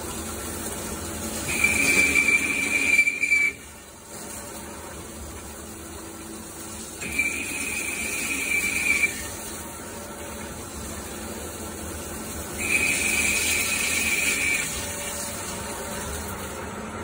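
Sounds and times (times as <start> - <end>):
lathe spindle and coolant spray: 0.0 - 16.8
cutting tool whine: 1.5 - 3.6.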